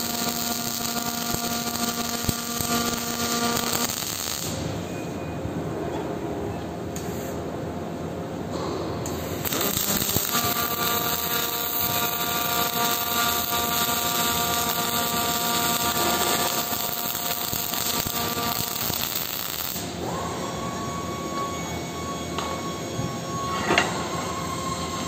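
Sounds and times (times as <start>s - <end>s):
welding arc crackling: 0.0s - 4.8s, 9.2s - 20.0s
machinery high whine: 8.5s - 25.0s.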